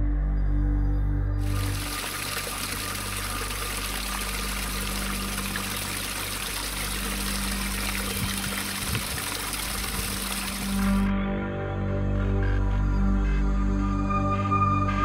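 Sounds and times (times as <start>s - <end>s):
waterfall splashing over rocks: 1.4s - 11.1s.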